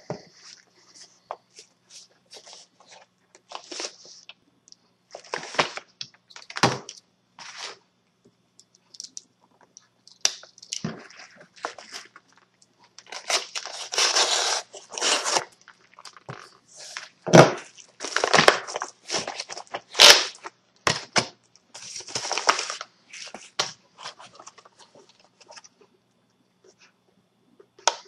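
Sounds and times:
plastic packaging crinkling: 10.1 - 25.7
envelope tearing and rustling: 13.0 - 15.5, 16.1 - 24.7.

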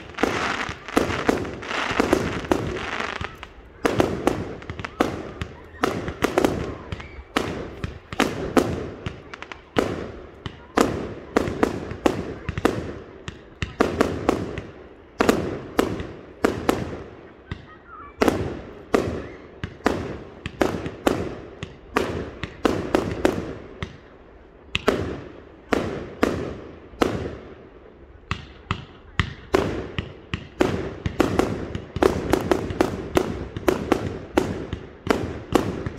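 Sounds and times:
fireworks bangs echoing: 0.0 - 24.1, 24.7 - 35.9.

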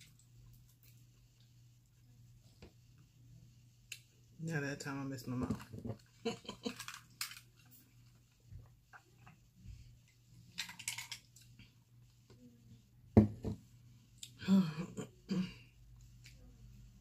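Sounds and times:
person clearing throat: 14.4 - 15.7.

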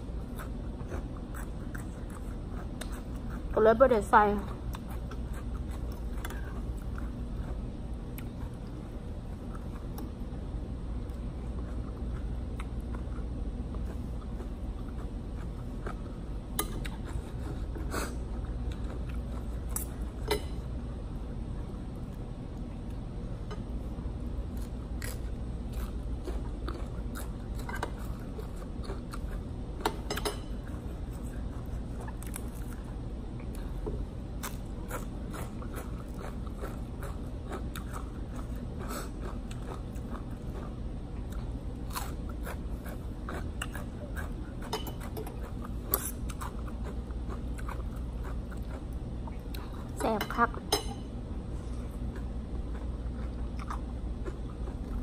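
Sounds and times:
person chewing and crunching food: 0.0 - 3.6, 4.2 - 20.6, 21.5 - 50.0, 51.4 - 55.0
steady low hum: 0.0 - 55.0
cutlery clicking on plate: 20.2 - 20.6, 29.8 - 30.5, 44.7 - 45.4.

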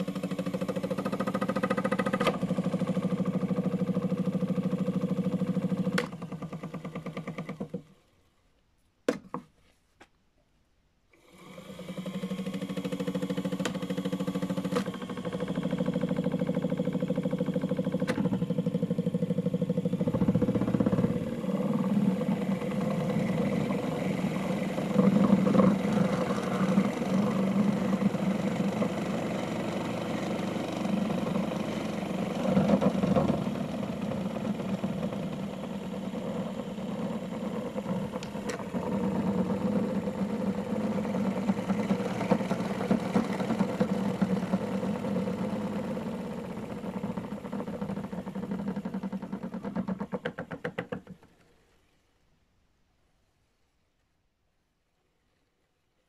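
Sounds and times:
small electric motor humming: 11.2 - 49.8.

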